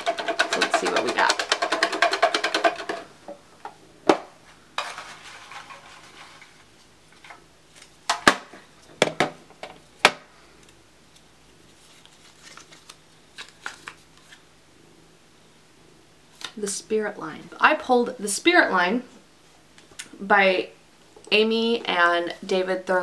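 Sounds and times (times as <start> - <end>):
paper slip unfolding: 11.8 - 14.4.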